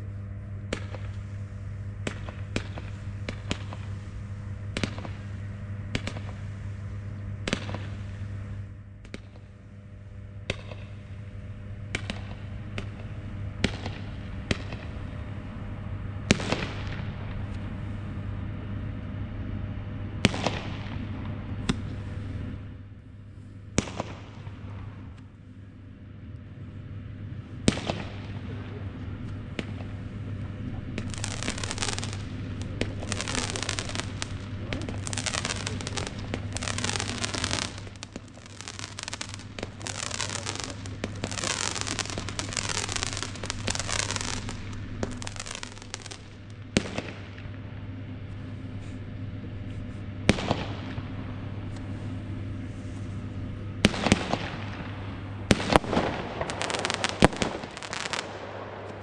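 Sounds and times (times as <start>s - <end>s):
firework bangs: 0.7s - 4.1s, 4.7s - 6.4s, 23.8s - 25.2s, 27.6s - 47.5s, 50.3s - 51.1s, 53.8s - 59.0s.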